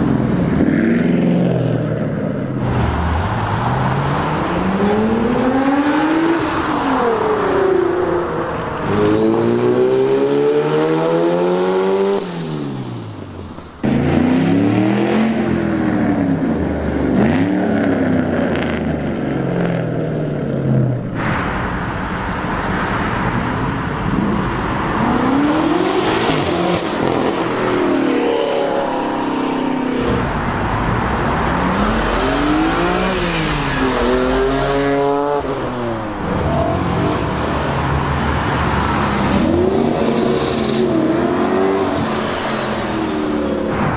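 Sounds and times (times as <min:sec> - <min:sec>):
sports cars accelerating past: 0:24.1 - 0:43.9.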